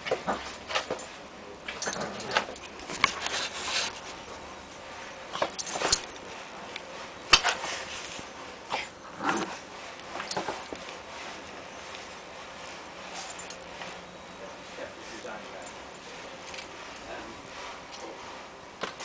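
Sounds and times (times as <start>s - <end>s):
scuffs and rustling: 2.0s - 19.0s.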